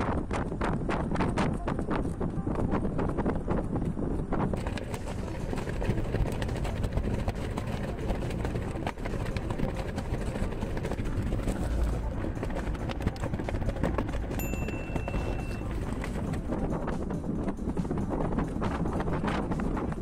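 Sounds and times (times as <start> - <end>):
car interior road rumble: 4.6 - 17.6.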